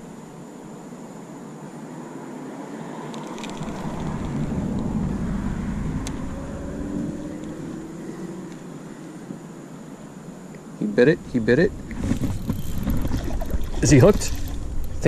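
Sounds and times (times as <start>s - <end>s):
vehicle passing by: 2.7s - 9.3s.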